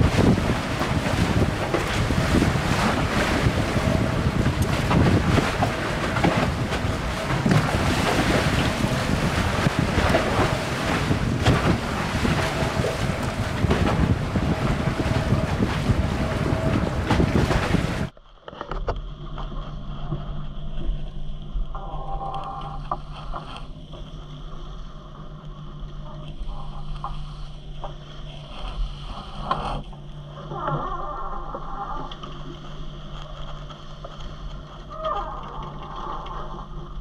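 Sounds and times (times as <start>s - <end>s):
wind buffeting microphone: 0.0s - 18.1s
steady low hum: 0.0s - 37.0s
water rushing along hull: 0.0s - 37.0s.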